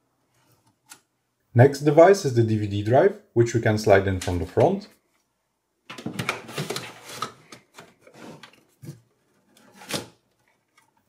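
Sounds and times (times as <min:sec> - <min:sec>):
knocks and scrapes: 0:05.9 - 0:11.0.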